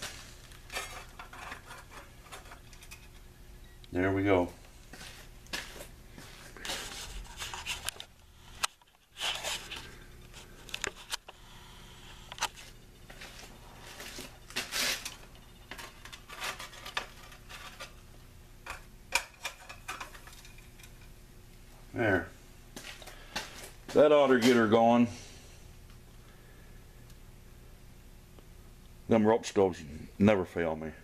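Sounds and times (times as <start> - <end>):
handling clicks and scrapes: 0.0 - 3.2, 6.6 - 11.4, 12.2 - 18.0.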